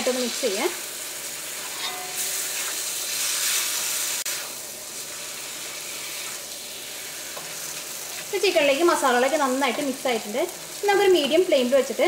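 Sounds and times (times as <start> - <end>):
chicken sizzling in oil: 0.0 - 12.0
spatula stirring in pan: 1.4 - 10.0.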